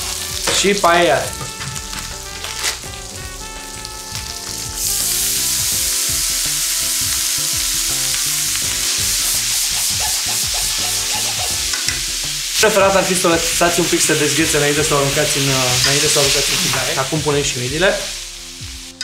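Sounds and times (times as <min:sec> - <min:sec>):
food sizzling in a frying pan: 0:00.0 - 0:19.0
frozen food poured into pan: 0:00.1 - 0:03.0
tongs stirring in a pan: 0:05.0 - 0:17.1.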